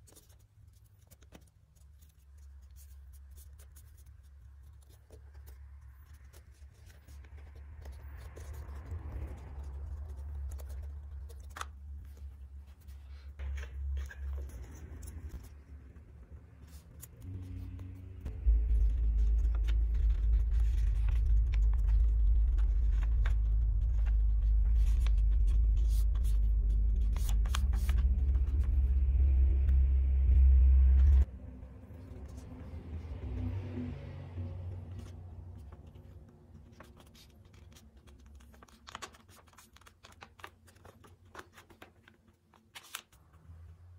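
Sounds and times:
paper crinkling and tapping: 0.0s - 16.0s, 18.5s - 28.9s, 34.9s - 43.4s
loud low rumble: 17.3s - 35.7s.

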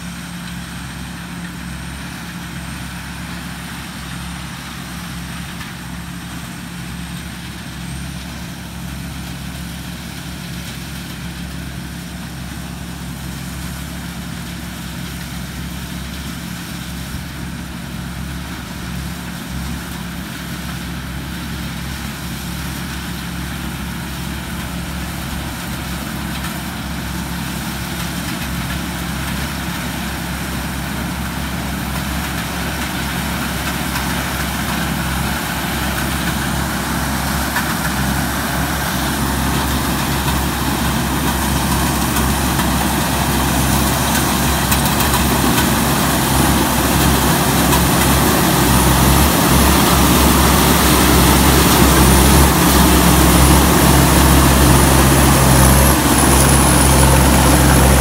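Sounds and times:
diesel engine running: 0.0s - 58.0s
machinery whirring: 31.8s - 58.0s.

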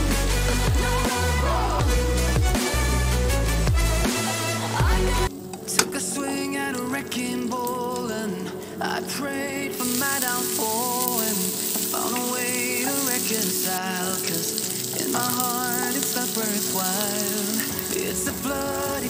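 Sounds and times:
background music: 0.0s - 19.0s
onions sizzling in hot oil: 9.7s - 19.0s.

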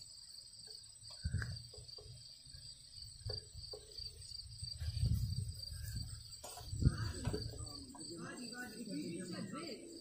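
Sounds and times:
crickets chirping: 0.0s - 10.0s
microphone handling rumble: 4.6s - 7.8s.

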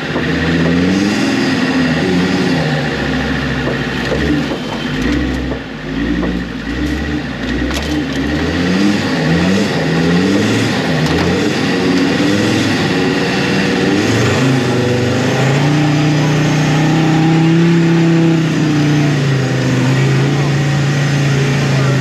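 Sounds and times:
car engine revving: 0.0s - 22.0s
sharp clicks and knocks: 3.6s - 8.4s, 11.0s - 12.1s.

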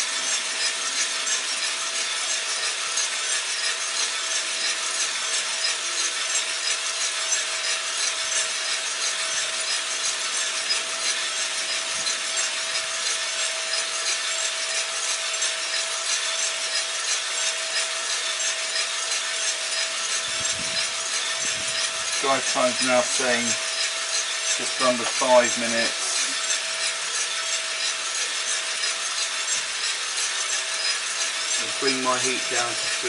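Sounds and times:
exhaust fan and burner rushing: 0.0s - 33.0s
steady hum: 18.8s - 27.2s
coffee beans tumbling in drum: 24.5s - 26.5s, 27.8s - 33.0s.

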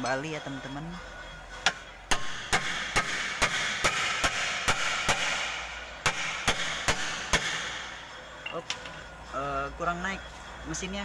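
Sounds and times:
hammer striking steel: 1.6s - 8.9s.

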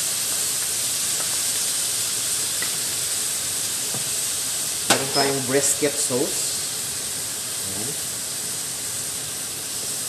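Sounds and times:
meat sizzling in hot oil: 0.0s - 10.0s.

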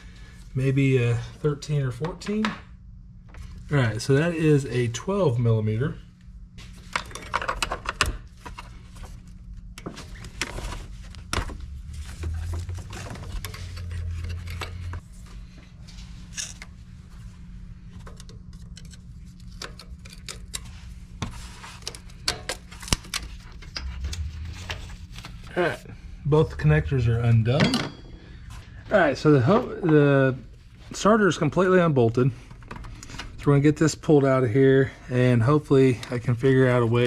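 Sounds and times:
low hum: 8.5s - 30.8s.

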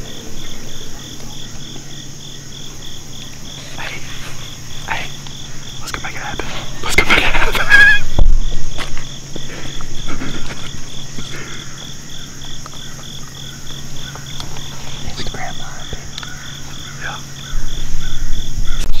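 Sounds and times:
continuous high buzz: 0.0s - 19.0s
insects chirping: 0.0s - 19.0s.

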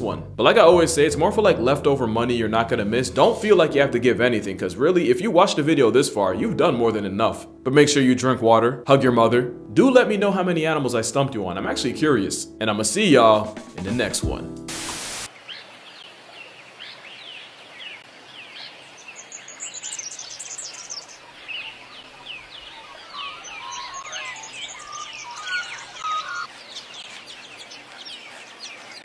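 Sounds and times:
many birds chirping: 15.3s - 29.0s.

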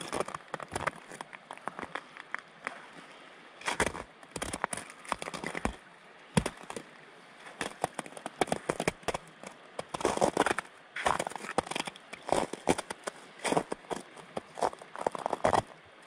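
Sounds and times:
footsteps crunching in snow: 3.7s - 5.8s, 9.9s - 15.6s.

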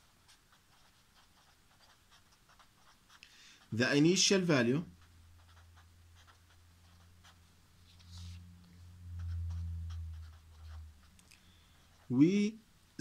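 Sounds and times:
marker pen scratching on paper: 0.0s - 12.4s
low hum: 5.1s - 12.0s.

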